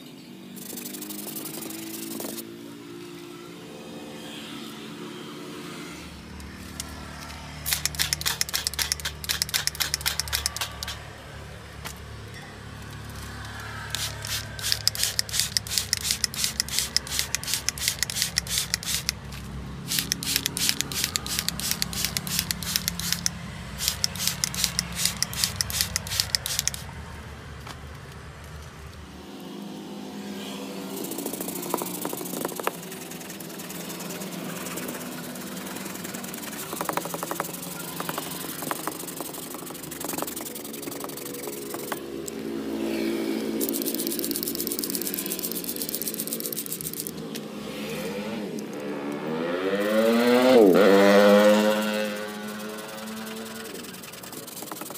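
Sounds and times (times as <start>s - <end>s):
aerosol can rattling when shaken: 0.6s - 2.4s, 6.6s - 11.1s, 13.0s - 26.9s, 30.9s - 42.4s, 43.4s - 47.3s, 50.7s - 54.9s
foam spray hissing: 7.4s - 11.1s, 13.7s - 19.2s, 19.8s - 26.9s, 30.8s - 47.1s, 49.8s - 54.9s.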